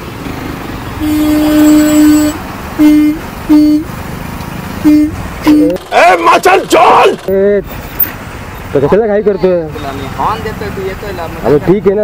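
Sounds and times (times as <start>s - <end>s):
traffic and engine noise: 0.0s - 12.0s
vehicle horn honking: 1.0s - 3.9s, 4.8s - 5.9s.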